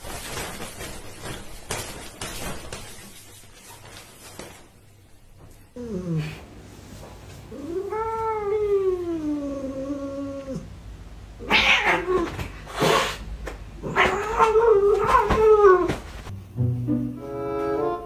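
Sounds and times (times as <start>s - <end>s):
cat yowling: 11.4s - 12.4s, 13.8s - 16.0s.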